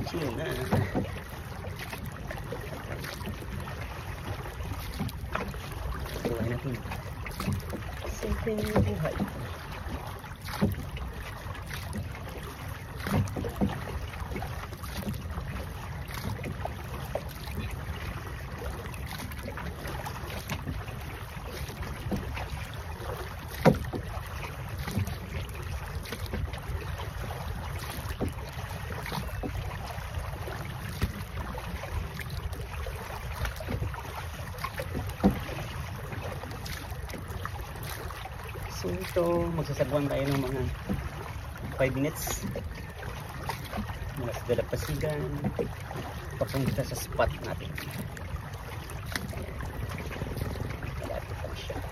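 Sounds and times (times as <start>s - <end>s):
paddle stroking water: 0.0s - 51.9s
water sloshing: 0.0s - 51.9s
wind on microphone: 49.3s - 51.9s.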